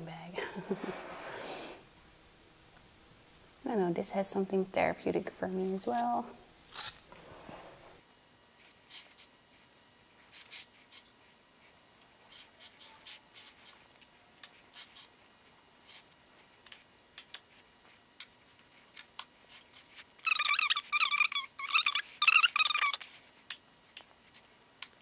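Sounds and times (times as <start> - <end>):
spatula scraping frosting: 10.2 - 15.2.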